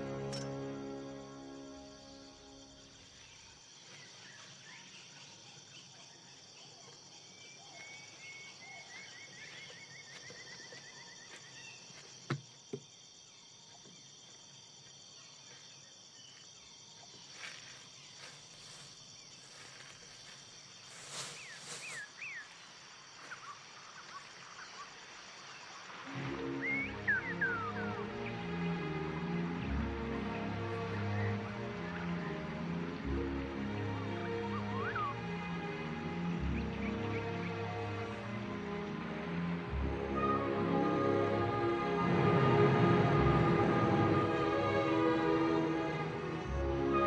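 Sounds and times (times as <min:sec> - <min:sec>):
high insect drone: 0:00.0 - 0:47.0
bird chirps: 0:34.4 - 0:35.7.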